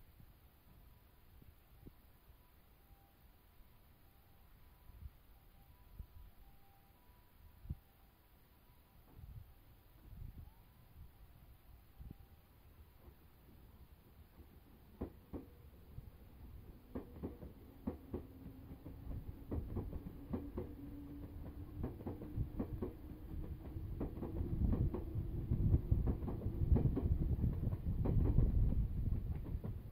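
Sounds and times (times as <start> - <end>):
train wheels clacking over rail joints: 14.3 - 15.6, 16.6 - 29.9.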